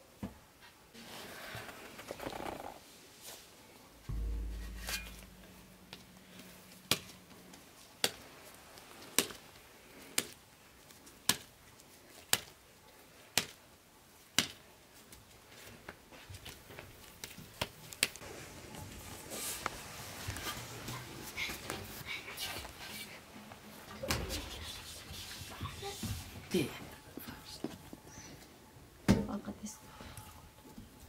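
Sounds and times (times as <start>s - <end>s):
dough slapped between hands: 11.2s - 11.5s, 12.3s - 12.5s, 13.4s - 13.6s, 14.4s - 14.6s.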